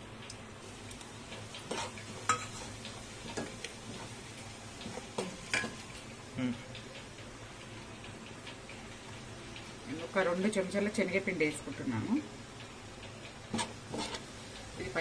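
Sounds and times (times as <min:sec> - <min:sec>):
spices sizzling in hot oil: 0:00.0 - 0:15.0
spoon scraping and knocking pan: 0:01.6 - 0:04.1, 0:13.5 - 0:15.0.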